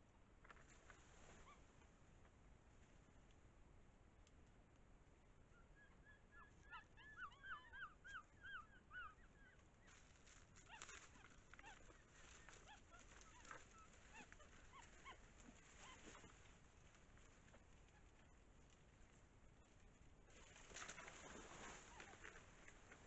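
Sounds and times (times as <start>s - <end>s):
faint short animal calls: 5.5s - 16.6s
light rustling: 9.6s - 23.0s.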